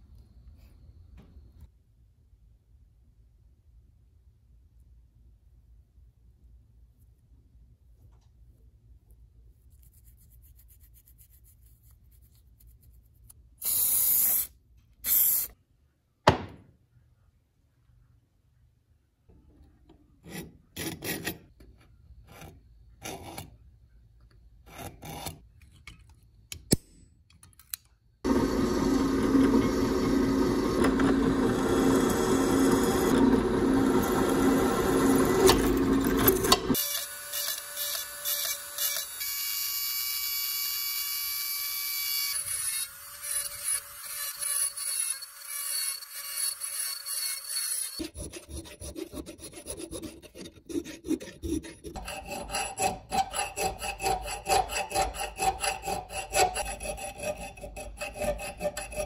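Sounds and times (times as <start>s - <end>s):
drill press drilling steel: 28.3s - 39.3s
hand filing steel: 43.4s - 59.0s.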